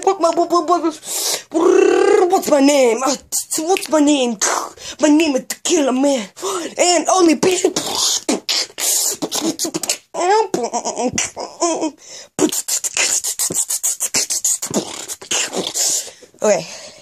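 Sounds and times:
beatboxing clicks and hisses: 0:03.2 - 0:04.8, 0:07.6 - 0:10.1, 0:12.4 - 0:16.2.

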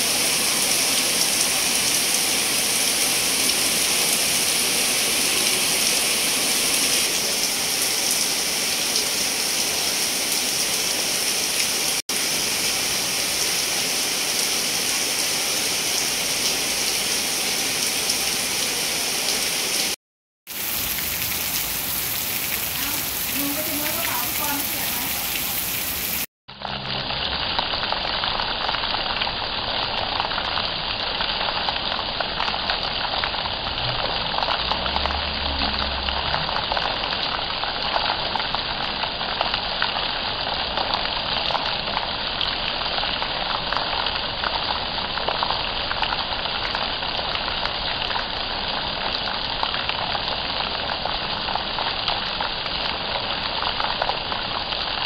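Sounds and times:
heavy rain hissing: 0:00.0 - 0:26.3.

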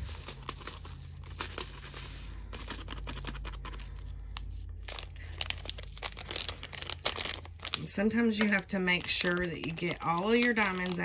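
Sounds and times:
rhinestones pouring into container: 0:00.0 - 0:03.3
plastic bag crinkling: 0:00.0 - 0:11.0.

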